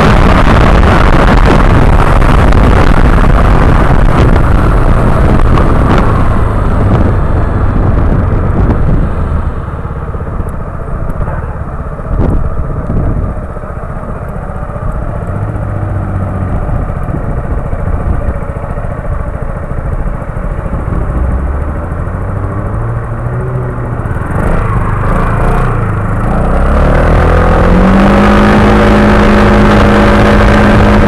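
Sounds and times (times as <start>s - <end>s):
wind noise on microphone: 0.0s - 31.0s
motorcycle engine idling: 4.9s - 23.1s.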